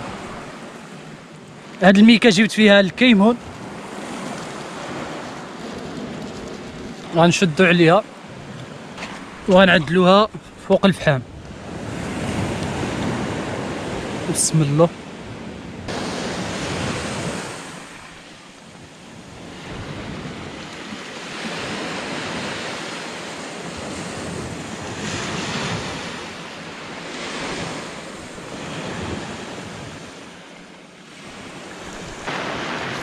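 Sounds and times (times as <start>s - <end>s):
sea waves breaking on shore: 0.0s - 33.0s
wind buffeting microphone: 2.9s - 30.2s.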